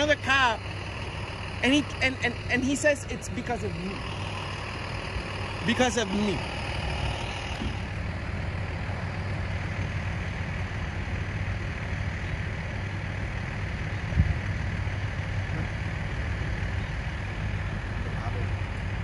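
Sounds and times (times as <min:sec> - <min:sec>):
vehicle engine idling: 0:00.0 - 0:19.0.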